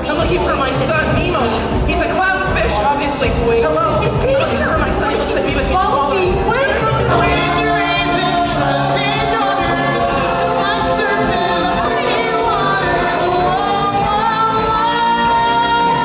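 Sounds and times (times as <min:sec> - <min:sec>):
musical accompaniment: 0:00.0 - 0:16.0
voices singing together: 0:06.4 - 0:16.0.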